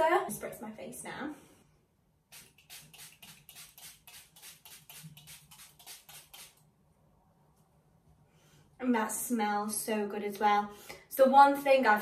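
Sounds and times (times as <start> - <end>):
spray bottle spritzing: 2.3 - 6.6.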